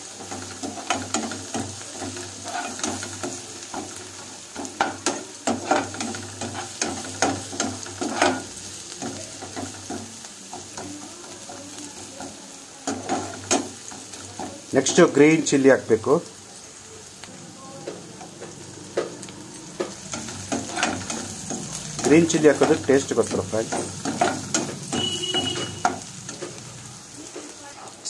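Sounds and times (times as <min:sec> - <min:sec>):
onions sizzling in oil: 0:00.0 - 0:28.0
wooden spatula scraping a pan: 0:00.1 - 0:11.0, 0:18.3 - 0:27.6.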